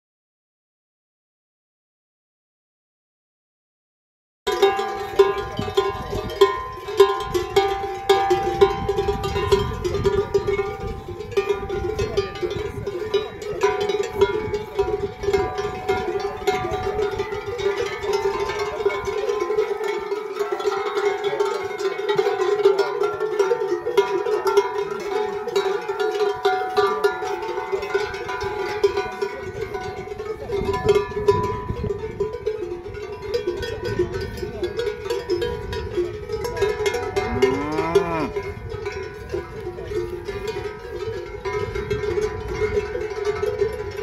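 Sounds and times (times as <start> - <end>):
cowbells clanking: 4.5 - 44.0
cow mooing: 37.2 - 38.4.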